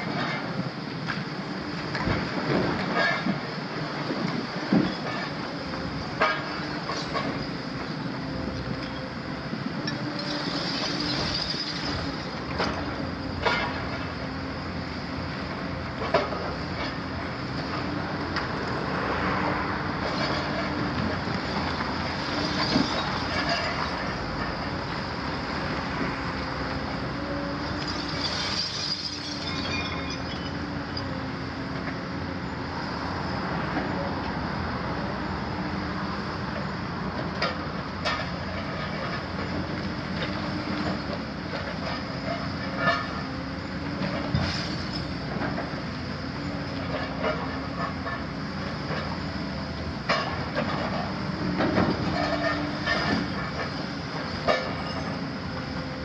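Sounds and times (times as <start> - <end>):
excavator engine and hydraulics: 0.0 - 56.0
concrete debris falling: 27.9 - 30.2.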